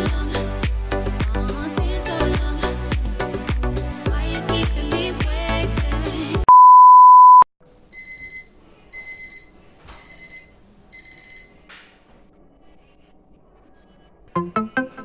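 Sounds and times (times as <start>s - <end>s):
high beep tone: 6.5s - 11.5s.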